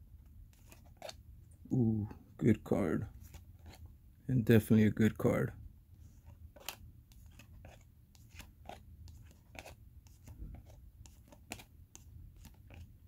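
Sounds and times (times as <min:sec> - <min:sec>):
trading cards clicking and rustling: 0:06.2 - 0:13.0.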